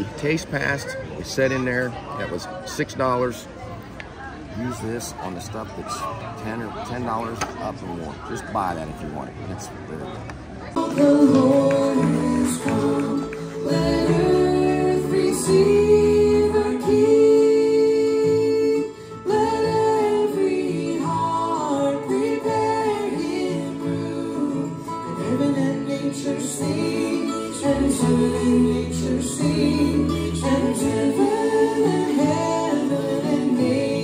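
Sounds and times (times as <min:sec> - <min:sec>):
woman singing: 0:10.8 - 0:34.0.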